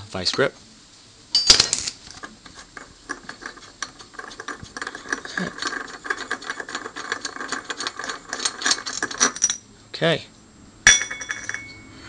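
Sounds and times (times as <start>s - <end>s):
metallic ticks of nut spinning: 2.2s - 9.6s.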